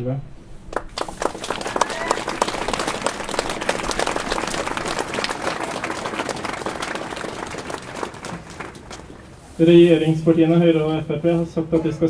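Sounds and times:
crowd applauding: 0.7 - 9.4.

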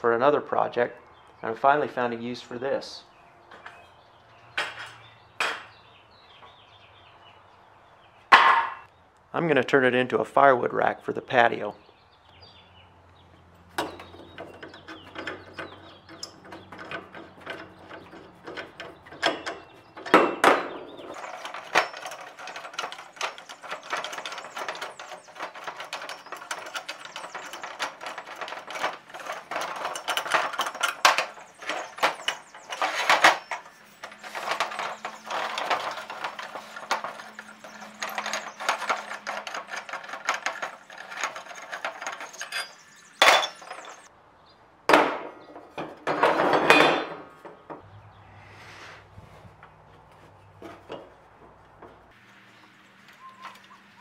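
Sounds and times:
metal parts scraping and rattling: 3.5 - 5.8, 13.6 - 44.1, 45.5 - 47.6, 49.2 - 54.0
metal knocks: 4.6 - 5.8, 13.7 - 44.1, 44.9 - 47.9.

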